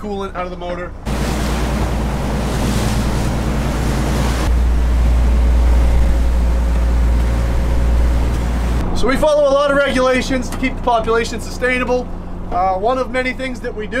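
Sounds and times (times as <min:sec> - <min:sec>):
wind: 0:00.0 - 0:14.0
boat engine drone: 0:00.2 - 0:14.0
water rushing over hull: 0:01.0 - 0:09.3.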